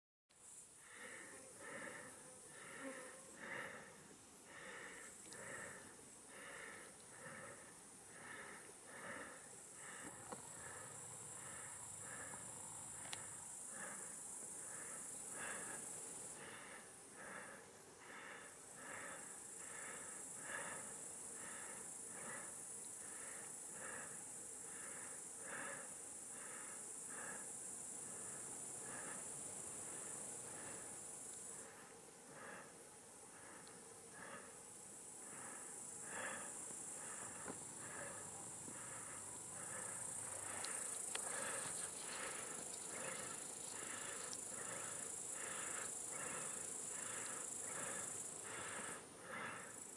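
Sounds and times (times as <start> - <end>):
high-pitched insect trill: 33.6 - 49.9.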